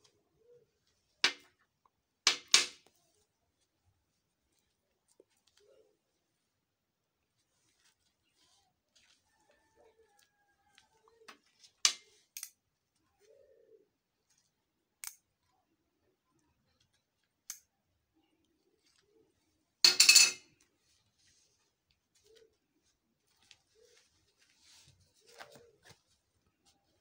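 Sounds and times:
dove cooing: 0.1s - 0.9s, 5.6s - 6.0s, 13.0s - 14.2s, 22.1s - 22.9s, 23.7s - 26.0s.

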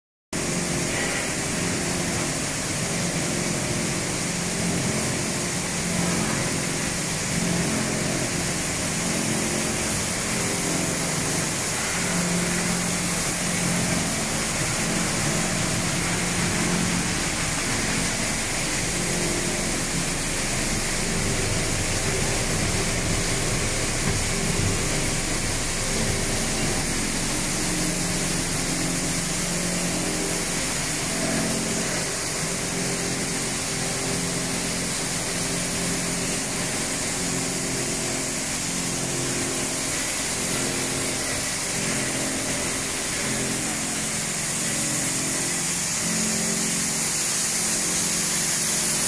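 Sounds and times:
industrial machinery running: 0.4s - 49.0s
low hum: 12.0s - 31.9s.

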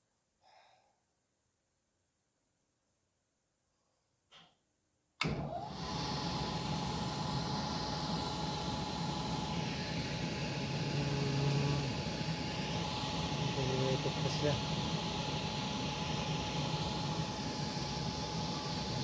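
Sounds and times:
blower fan rushing air: 5.4s - 19.0s
thin motor whine: 5.4s - 19.0s.

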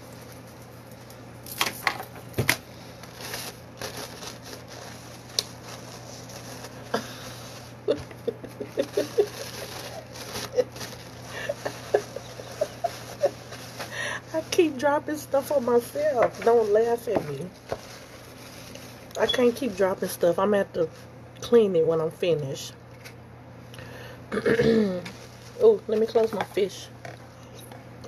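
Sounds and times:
steady low hum: 0.0s - 28.0s
paper napkins rustling: 2.7s - 20.3s, 25.1s - 26.7s.

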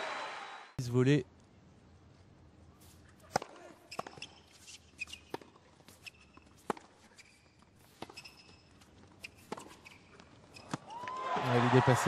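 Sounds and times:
shoe squeaks on court: 2.8s - 11.0s
racket striking tennis ball: 3.3s - 4.4s, 9.2s - 10.9s.

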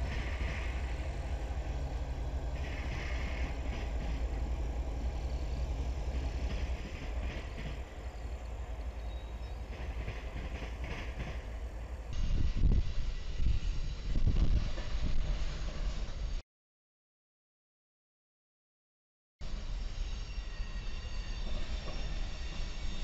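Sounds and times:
diesel locomotive rumbling: 0.0s - 16.4s
train wheels squealing on rails: 0.0s - 16.4s, 19.4s - 23.0s.

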